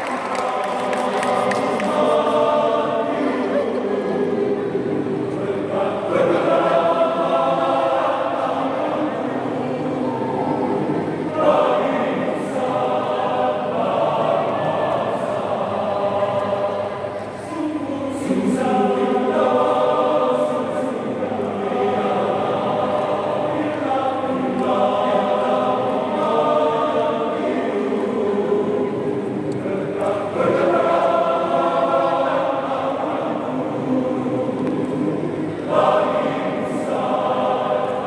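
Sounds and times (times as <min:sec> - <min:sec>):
choir singing: 0:00.0 - 0:38.0.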